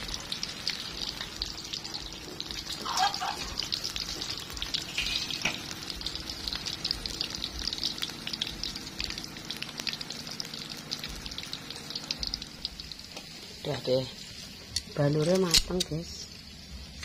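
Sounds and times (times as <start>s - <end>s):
fish frying in oil: 0.0s - 17.0s.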